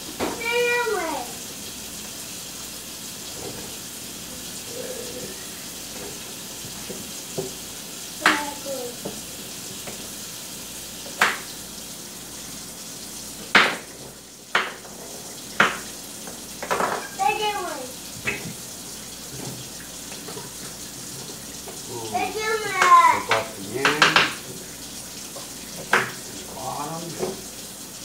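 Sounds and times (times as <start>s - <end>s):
knife chopping on cutting board: 11.2s - 11.5s, 13.5s - 13.9s, 15.6s - 15.9s.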